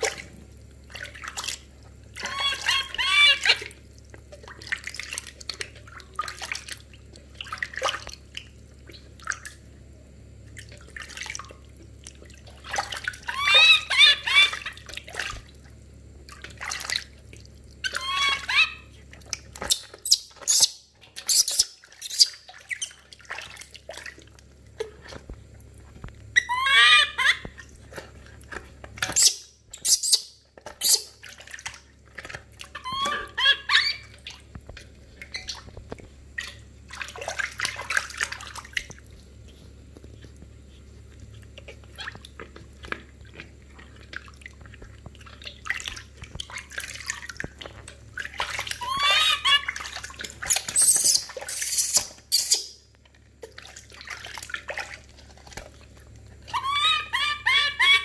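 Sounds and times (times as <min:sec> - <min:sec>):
water splashing in a basin: 0:00.0 - 0:58.0
baby monkey crying: 0:02.2 - 0:03.7, 0:13.2 - 0:14.8, 0:17.8 - 0:18.9, 0:26.4 - 0:27.6, 0:32.8 - 0:34.2, 0:48.8 - 0:49.8, 0:50.5 - 0:52.8, 0:56.5 - 0:58.0.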